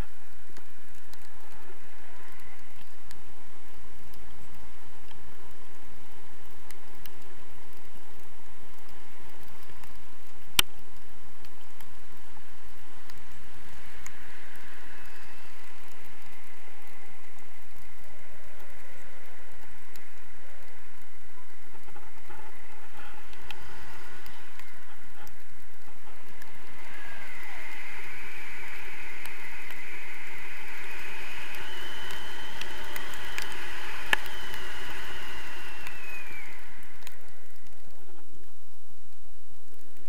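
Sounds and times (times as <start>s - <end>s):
faint high whistling tone: 26.0s - 37.8s.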